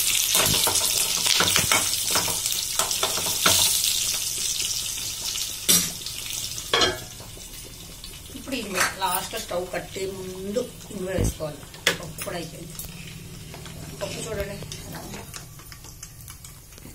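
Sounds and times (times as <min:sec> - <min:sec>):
spices sizzling in hot oil: 0:00.0 - 0:16.9.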